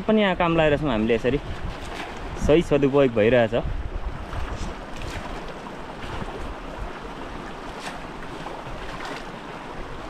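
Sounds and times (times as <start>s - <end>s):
stream rushing over stones: 0.0s - 10.0s
light water splashes: 1.2s - 10.0s.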